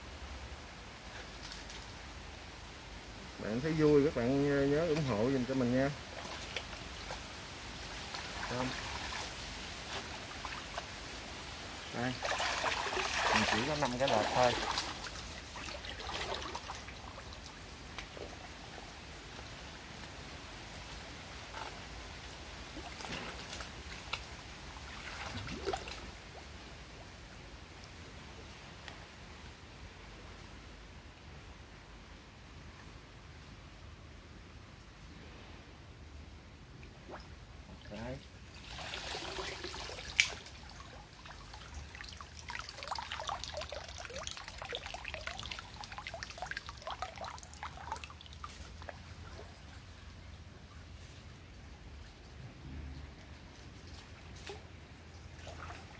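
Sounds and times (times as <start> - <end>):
water sloshing and splashing: 3.4 - 20.1, 20.7 - 27.1, 36.8 - 55.9.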